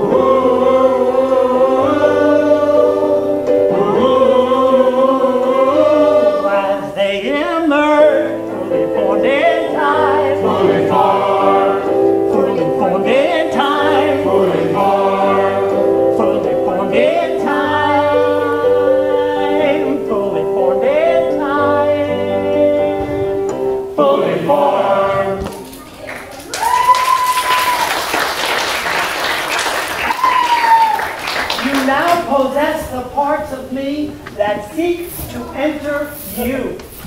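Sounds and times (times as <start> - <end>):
choir singing sustained notes: 0.0 - 25.5.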